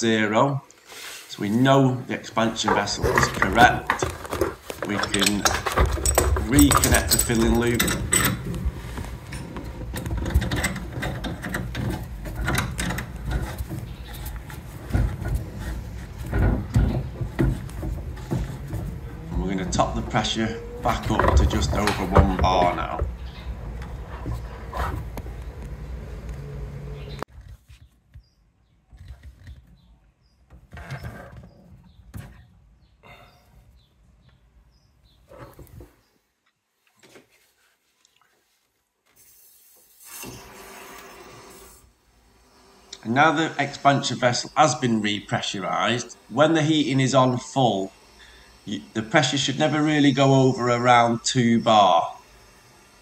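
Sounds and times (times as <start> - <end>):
handling rustles: 1.2 - 28.2
metal hose clicking and rattling: 2.6 - 19.0.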